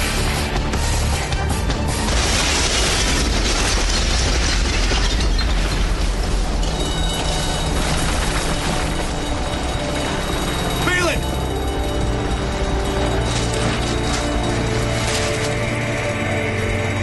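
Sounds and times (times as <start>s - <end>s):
rush of fire and rumble: 1.6s - 10.4s.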